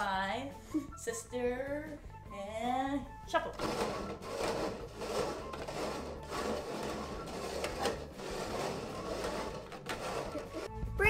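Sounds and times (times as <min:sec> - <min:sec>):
background music: 0:00.0 - 0:11.0
plastic cups scraping on table: 0:03.5 - 0:10.8.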